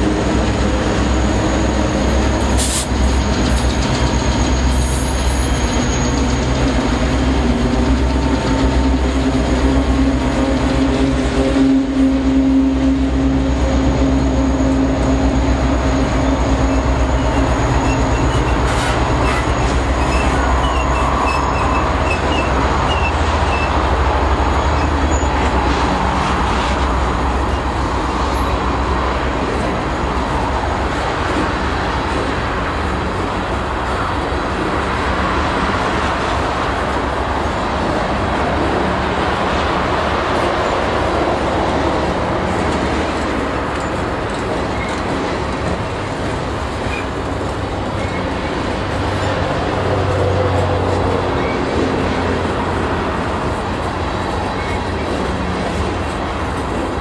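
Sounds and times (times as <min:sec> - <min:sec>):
diesel locomotive engine drone: 0:00.0 - 0:57.0
rumble of steel wheels on rail: 0:00.0 - 0:57.0
faint wheel squeals: 0:14.3 - 0:23.8.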